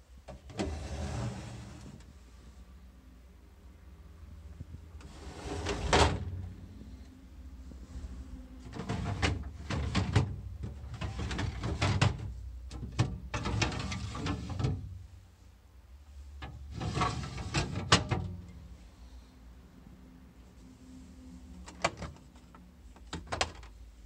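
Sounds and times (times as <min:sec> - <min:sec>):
fridge shelves and drawers clattering: 0:00.3 - 0:02.0, 0:05.0 - 0:06.4, 0:08.6 - 0:15.0, 0:16.4 - 0:18.5.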